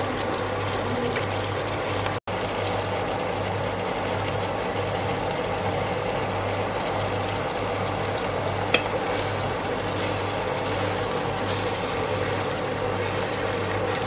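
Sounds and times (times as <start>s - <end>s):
stove hum and hiss: 0.0s - 14.0s
spoon stirring curry: 8.8s - 14.0s.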